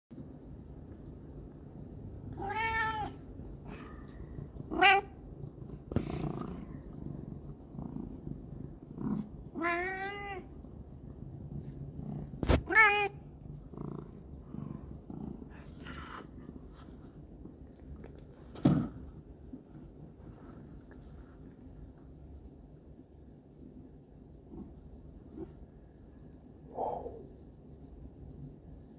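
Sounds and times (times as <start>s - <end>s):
cat meowing: 2.3s - 3.2s, 4.7s - 5.2s, 9.5s - 10.5s, 12.5s - 13.2s.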